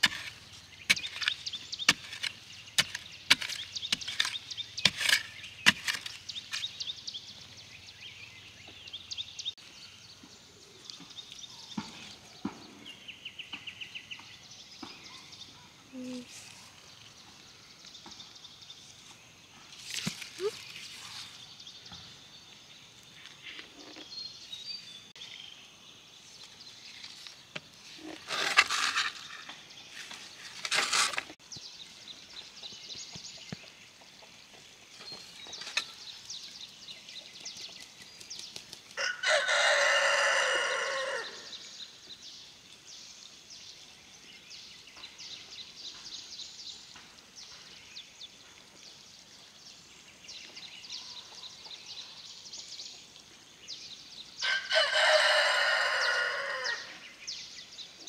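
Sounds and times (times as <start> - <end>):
gloved hands digging dry soil: 0.0 - 7.0, 26.6 - 31.4
rooster crowing: 39.0 - 41.5, 54.4 - 57.0.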